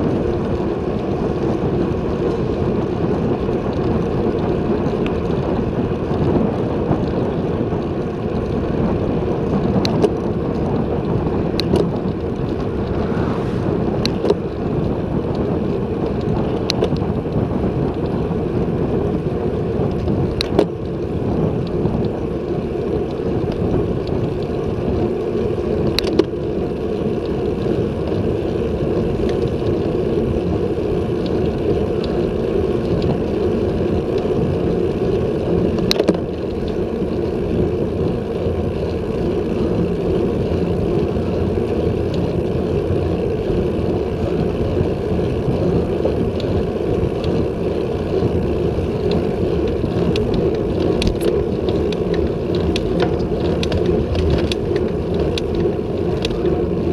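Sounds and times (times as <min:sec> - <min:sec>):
tyre noise on asphalt: 0:00.0 - 0:56.9
wind rushing over microphone: 0:00.0 - 0:56.9.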